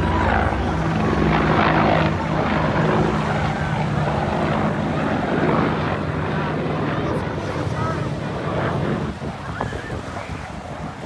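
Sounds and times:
helicopter engines humming: 0.0s - 11.0s
helicopter rotor blades chopping: 0.0s - 11.0s.

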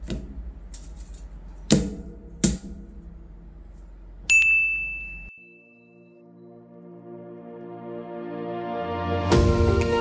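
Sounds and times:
bright steady ding: 4.3s - 6.2s.

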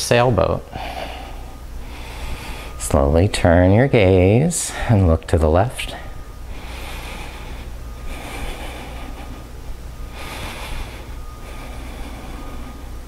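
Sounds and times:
steady low hum: 0.0s - 13.0s
slow breathing: 0.7s - 2.9s, 5.9s - 13.0s.

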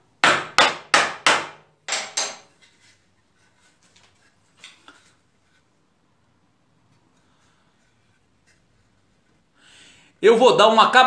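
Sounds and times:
hammer striking wood: 0.2s - 2.5s.

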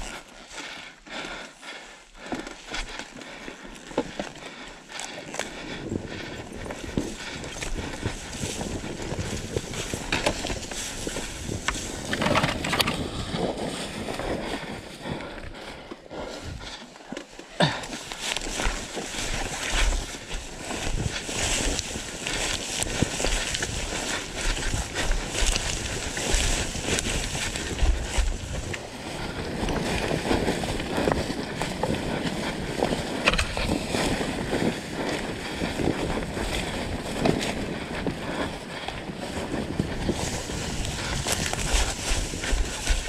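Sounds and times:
wind on microphone: 5.6s - 15.6s, 18.4s - 43.0s
dirt bike engine: 7.8s - 14.3s
knocks and thumps from bike: 11.6s - 13.8s, 33.2s - 34.1s.

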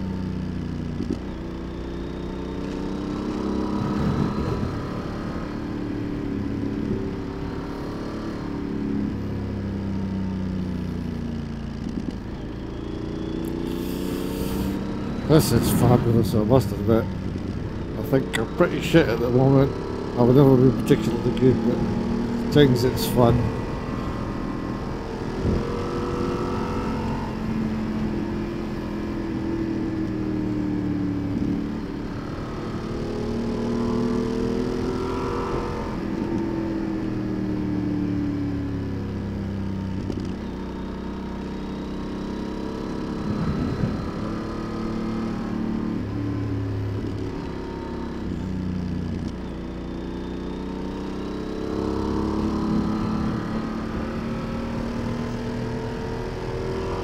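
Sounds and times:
motorcycle engine revving: 0.0s - 57.0s
wind rush: 3.8s - 4.9s, 43.3s - 44.0s.

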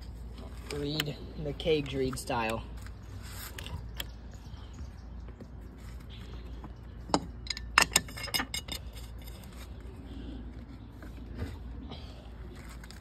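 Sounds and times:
metal parts clicking and clinking: 7.1s - 9.5s.

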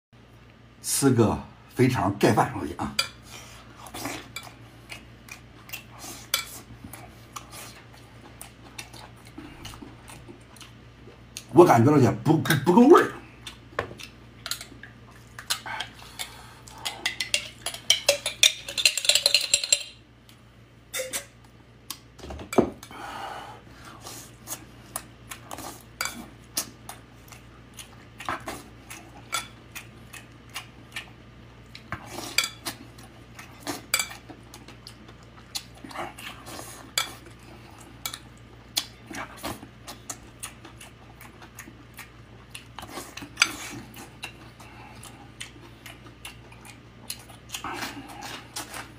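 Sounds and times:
chewing: 3.8s - 11.5s, 13.3s - 18.2s, 24.3s - 48.9s.

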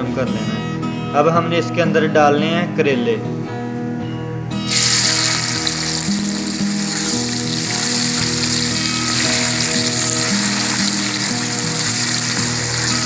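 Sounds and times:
vegetables sizzling in hot oil: 4.7s - 13.0s.

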